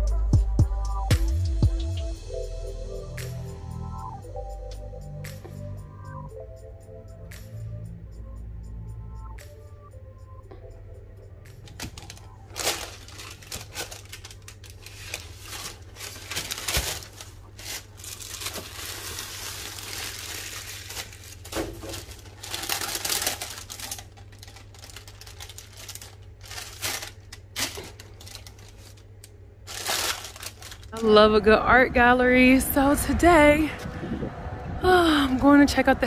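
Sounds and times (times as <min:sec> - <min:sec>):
steady low hum: 0:00.0 - 0:36.0
tissue paper rustling: 0:11.7 - 0:29.0, 0:29.6 - 0:31.3.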